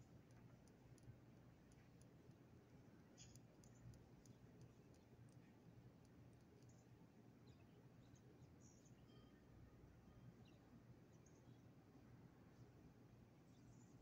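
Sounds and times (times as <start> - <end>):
faint clicks: 0.0 - 6.9.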